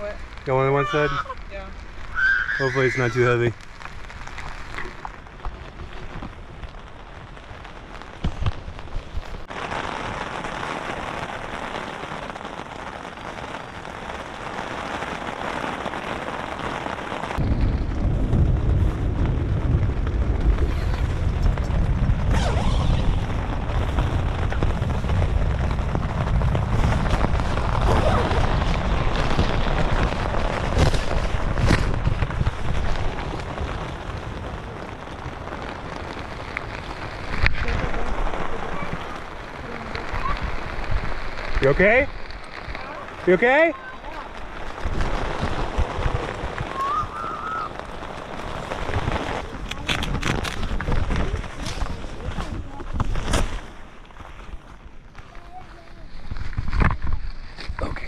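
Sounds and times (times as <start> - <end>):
deep thunder rumble: 0.0 - 53.6
rain and wind on a tent: 0.0 - 58.0
sharp thunder cracks: 17.3 - 53.6.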